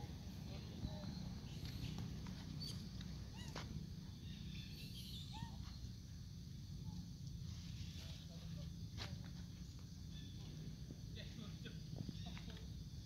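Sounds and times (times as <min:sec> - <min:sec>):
low outdoor rumble: 0:00.0 - 0:13.0
monkey squeaks and chirps: 0:01.5 - 0:03.6, 0:04.2 - 0:05.8.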